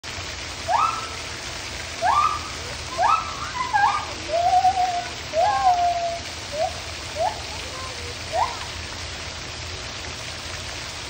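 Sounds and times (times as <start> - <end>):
background hiss: 0.0 - 11.0
gibbon whooping: 0.7 - 1.3, 2.0 - 8.7.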